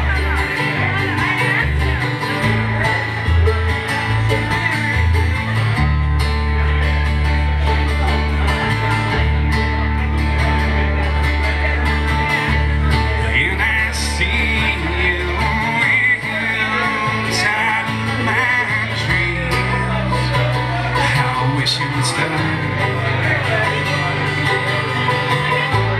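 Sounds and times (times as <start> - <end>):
acoustic bass guitar: 0.0 - 25.9
picked banjo: 0.0 - 25.9
strummed acoustic guitar: 0.0 - 25.9
man singing: 12.5 - 25.9.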